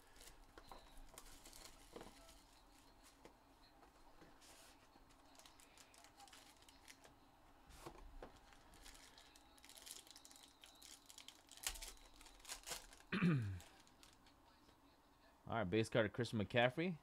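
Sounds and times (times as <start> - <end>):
foil wrapper crackling: 0.0 - 2.4, 5.1 - 7.1, 8.4 - 14.2
card box clicks and rustles: 7.8 - 13.1.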